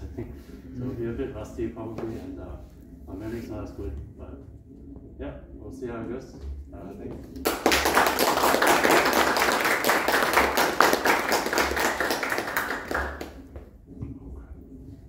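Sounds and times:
hands clapping: 0:07.4 - 0:13.7.

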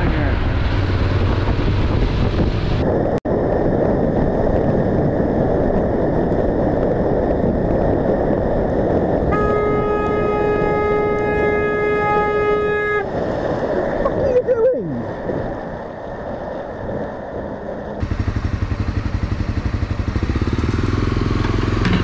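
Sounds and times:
wind and road noise: 0:00.0 - 0:22.0
vehicle horn blast: 0:09.3 - 0:13.2.

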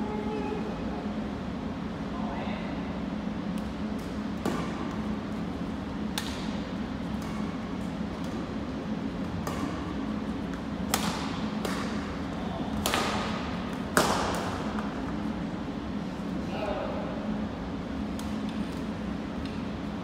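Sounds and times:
steady low hum: 0:00.0 - 0:20.0
rackets striking shuttlecock: 0:09.2 - 0:14.9.

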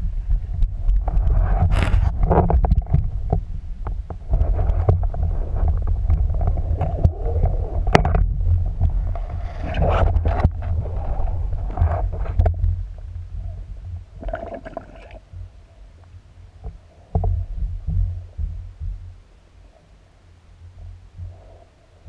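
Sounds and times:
underwater water rumble: 0:00.0 - 0:22.0.

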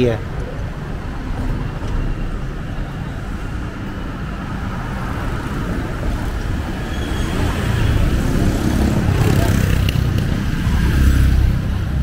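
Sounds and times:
road noise: 0:00.0 - 0:12.0
motor scooters passing: 0:03.7 - 0:12.0.

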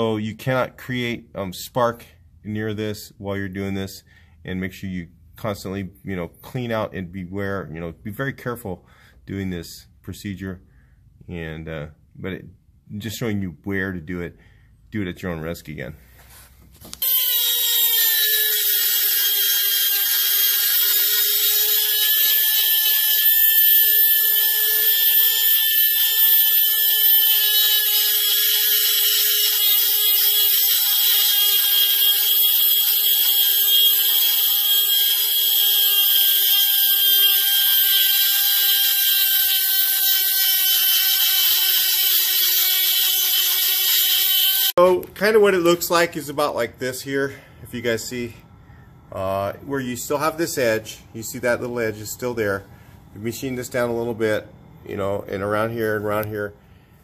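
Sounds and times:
rotary grinder whining: 0:17.0 - 0:44.8.

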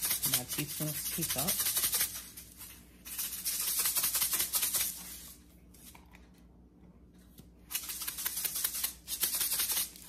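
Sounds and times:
salt shaker rattling: 0:00.0 - 0:05.4, 0:07.7 - 0:10.0.

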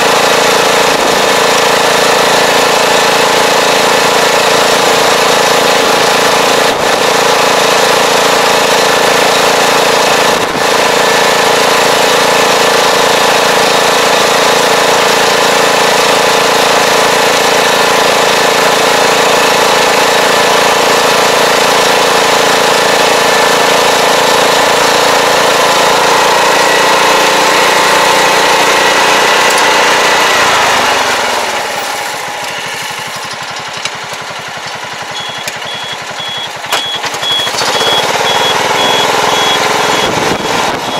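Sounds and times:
tractor engine running: 0:00.0 - 0:40.9
high reversing beep: 0:35.1 - 0:40.9.

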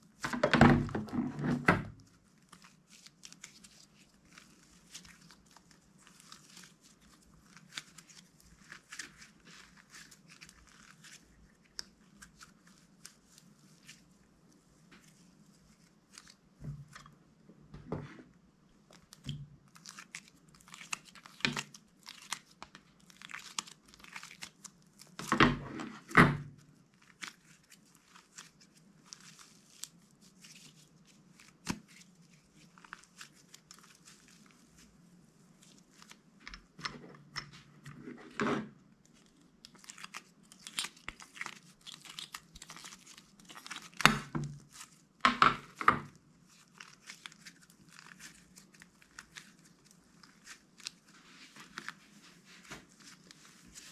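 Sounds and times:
slime crackling and popping: 0:18.9 - 0:25.4, 0:39.1 - 0:52.0.

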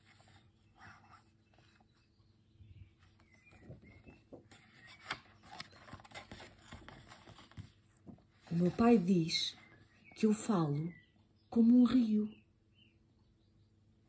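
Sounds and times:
paper pages rustling and turning: 0:00.0 - 0:02.1, 0:02.9 - 0:10.0.

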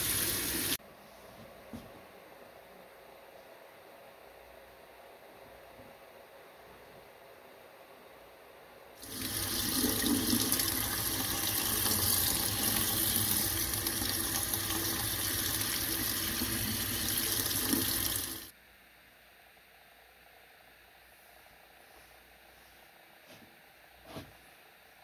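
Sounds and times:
faucet water splashing into sink: 0:09.0 - 0:18.5.

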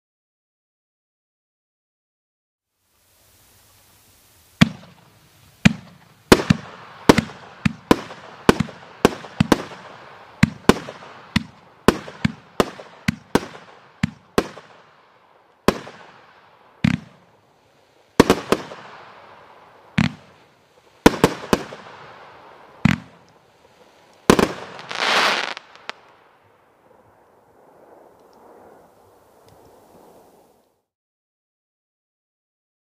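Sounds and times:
firework shots and reports: 0:04.6 - 0:15.0, 0:24.2 - 0:30.6.

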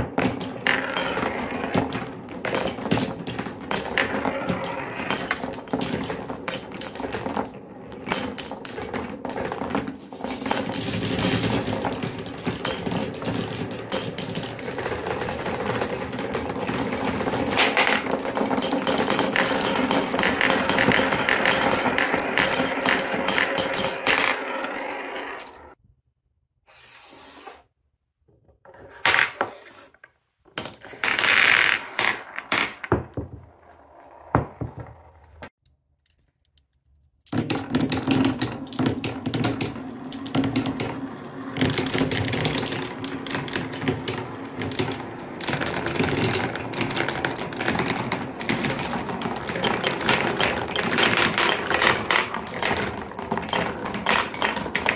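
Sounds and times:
glass marbles rolling and clacking: 0:00.0 - 0:25.8, 0:37.3 - 0:54.9.

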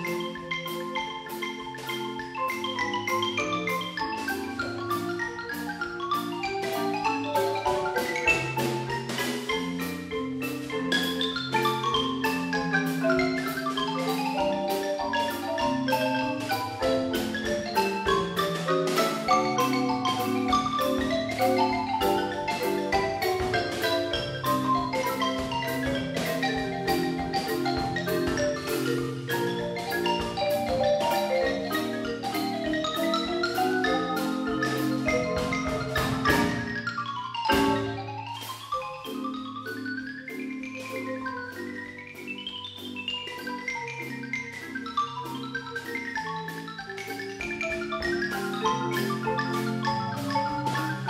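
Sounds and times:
drum kit keeping time: 0:00.0 - 0:51.0
marimbas playing fast notes: 0:00.0 - 0:51.0
loud percussion strikes: 0:06.7 - 0:36.9, 0:37.5 - 0:38.7.

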